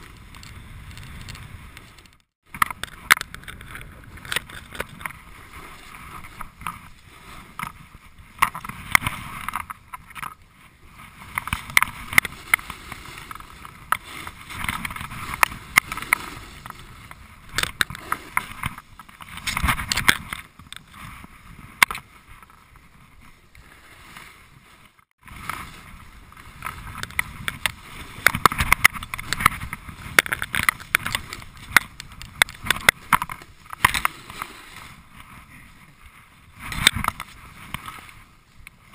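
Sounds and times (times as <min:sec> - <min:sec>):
sharp clicks and knocks: 0:02.0 - 0:05.2, 0:17.5 - 0:21.0, 0:26.6 - 0:34.2
snowboard scraping over snow: 0:03.6 - 0:09.8, 0:10.4 - 0:38.9.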